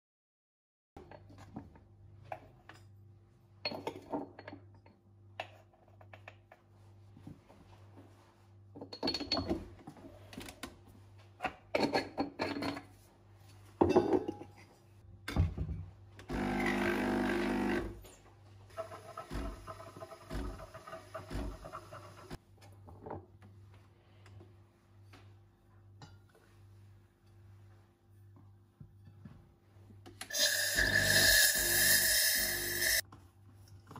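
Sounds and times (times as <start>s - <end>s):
espresso machine pump buzzing: 16.3s - 18.0s, 30.3s - 33.0s.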